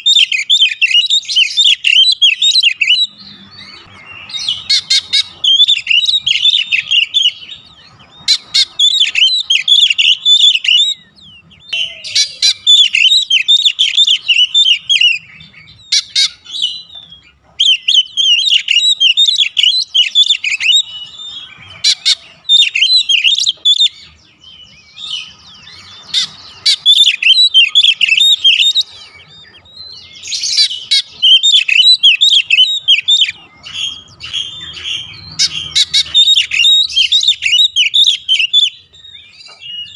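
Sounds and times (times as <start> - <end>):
songbird singing: 0.0 - 39.9.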